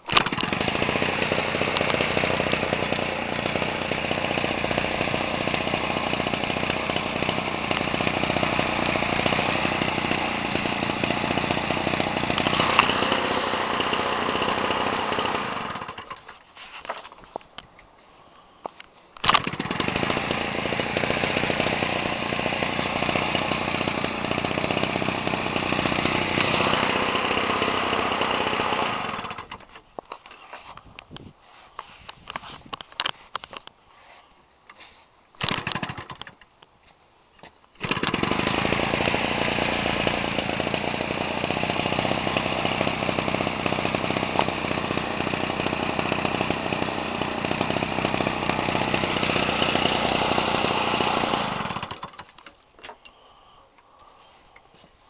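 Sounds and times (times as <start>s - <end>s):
two-stroke engine running: 0.1s - 16.3s, 19.2s - 29.7s, 35.4s - 36.2s, 37.8s - 52.4s.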